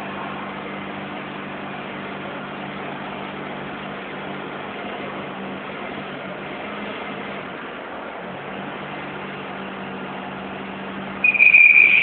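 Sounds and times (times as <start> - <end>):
forklift humming: 0.0 - 12.0.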